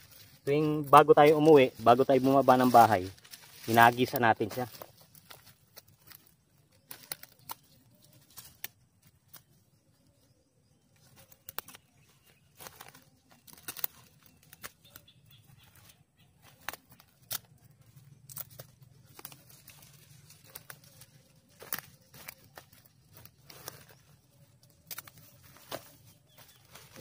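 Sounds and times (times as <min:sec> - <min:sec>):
footsteps through dry leaves and grass: 0:00.0 - 0:27.0
sharp twig snaps: 0:06.9 - 0:07.7, 0:11.4 - 0:11.8, 0:24.8 - 0:25.8.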